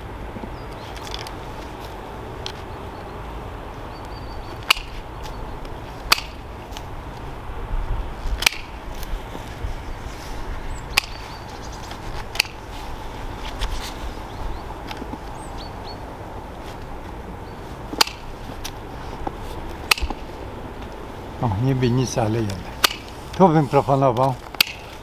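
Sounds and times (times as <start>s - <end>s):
pruning shears snipping twigs: 0.7s - 2.7s, 4.5s - 7.3s, 8.2s - 9.1s, 10.9s - 14.0s, 17.9s - 21.0s, 22.1s - 25.0s.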